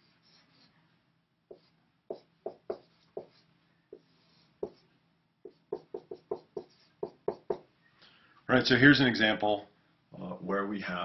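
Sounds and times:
marker strokes on whiteboard: 0.0s - 7.7s.

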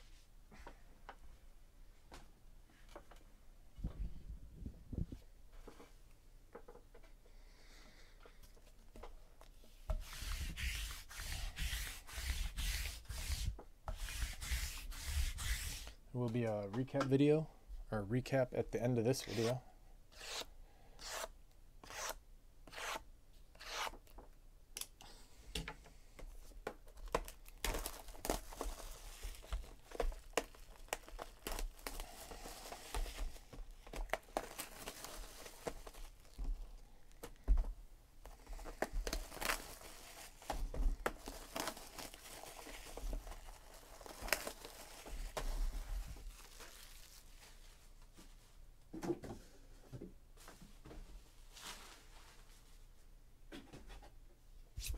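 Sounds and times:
wrapping ripping and crinkling: 27.0s - 37.4s, 38.3s - 47.8s.

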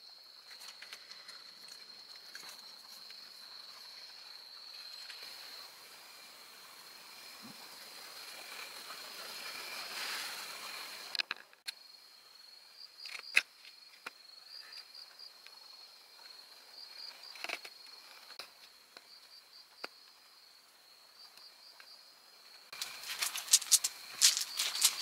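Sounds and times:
crickets chirping: 0.0s - 25.0s
dog paws crunching on gravel: 22.8s - 25.0s.

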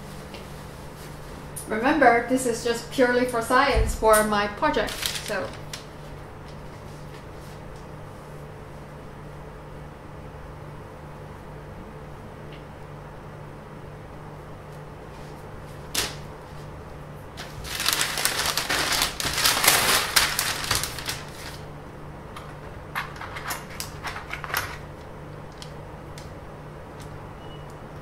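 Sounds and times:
steady low hum: 0.0s - 28.0s
paper rustling and sliding: 4.8s - 7.6s, 17.4s - 21.7s.

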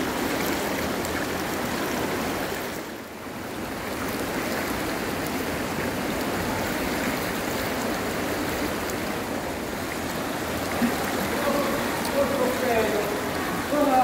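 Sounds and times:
rushing water: 0.0s - 14.0s.

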